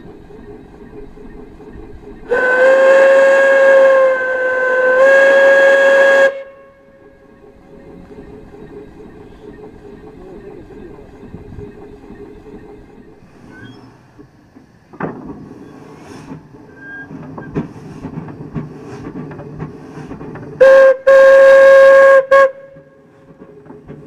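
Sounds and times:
steam engine clattering: 0.0s - 24.0s
steam whistle blasts: 2.3s - 7.0s, 20.6s - 23.1s.

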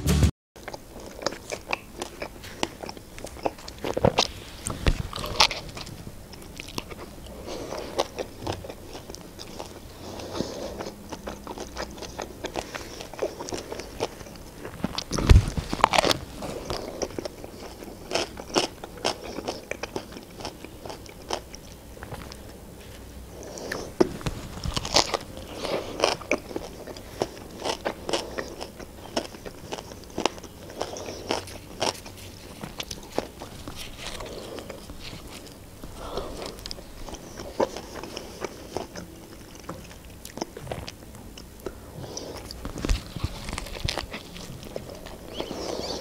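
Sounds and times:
chewing and biting food: 0.6s - 46.0s
paper napkin rustling: 14.6s - 16.8s, 32.2s - 35.5s
mouth clicks: 34.2s - 46.0s.

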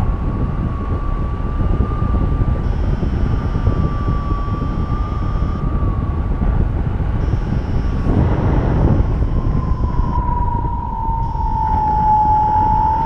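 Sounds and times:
wind rush on microphone: 0.0s - 13.0s
thin whistling tone: 0.3s - 6.0s, 8.8s - 13.0s.

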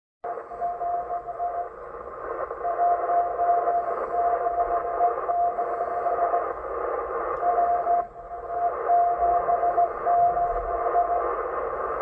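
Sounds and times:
morse code beat tone: 0.3s - 6.6s, 7.3s - 12.0s.

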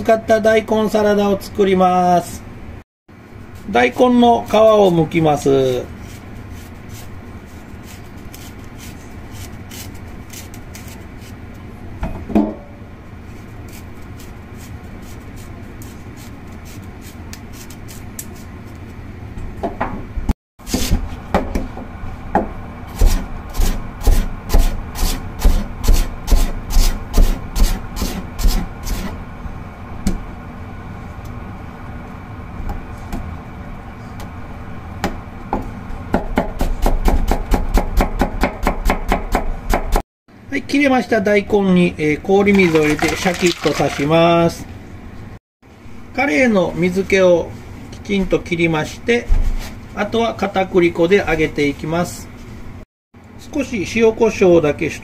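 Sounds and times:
knife scraping radish: 5.5s - 11.6s, 13.2s - 18.9s, 22.9s - 29.2s
knife chopping on plastic board: 36.1s - 40.0s.

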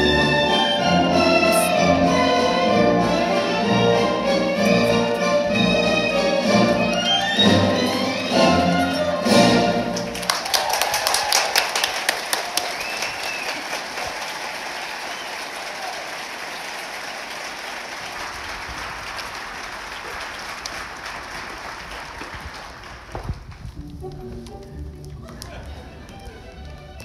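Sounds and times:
orchestral music: 0.0s - 10.4s, 23.8s - 27.0s
audience applauding: 5.9s - 27.0s.

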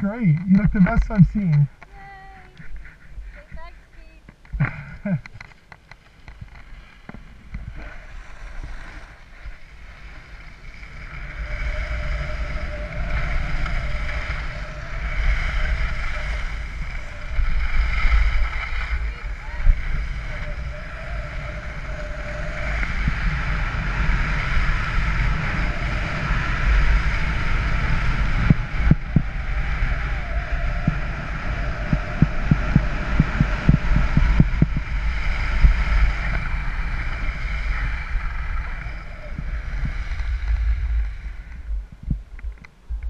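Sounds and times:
wind rumbling on microphone: 0.0s - 43.0s
skis hissing over snow: 6.6s - 28.5s.

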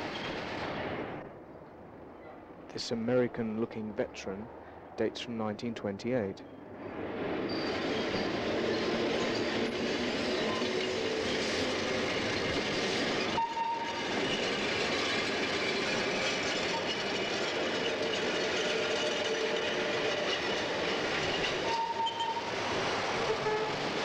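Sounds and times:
tram wheels rumbling on rails: 0.0s - 1.4s, 6.4s - 24.0s.

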